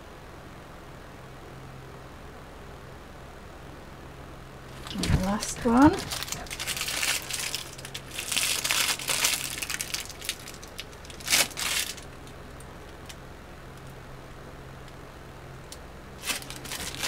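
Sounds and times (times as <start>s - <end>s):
plastic bag crinkling: 4.7s - 13.2s, 16.2s - 17.0s.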